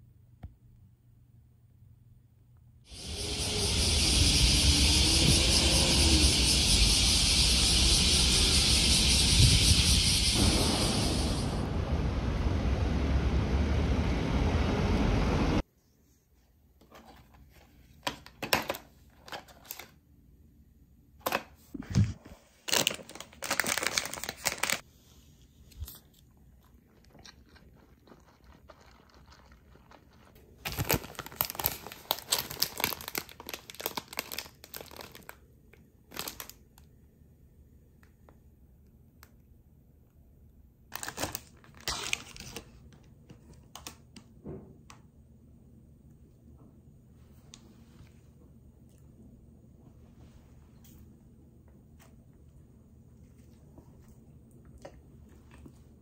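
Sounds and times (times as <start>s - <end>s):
street noise: 2.9s - 15.6s
plastic wrapper crinkling and tearing: 22.6s - 24.8s, 28.0s - 35.5s, 36.1s - 36.9s, 40.9s - 44.1s.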